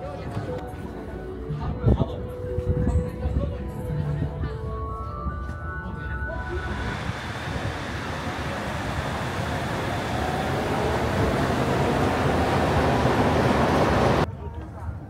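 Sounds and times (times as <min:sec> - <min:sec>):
suspended train rumbling: 0:06.3 - 0:14.3
faint whine rising in pitch: 0:06.4 - 0:14.3.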